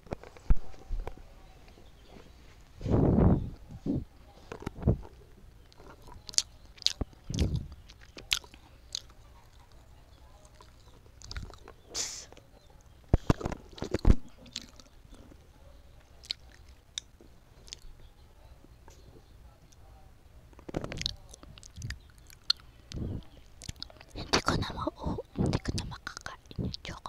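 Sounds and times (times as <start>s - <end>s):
biting and chewing clicks: 4.5s - 9.8s, 10.4s - 15.3s, 16.1s - 17.9s, 20.5s - 24.7s
breathy hiss: 11.9s - 12.4s.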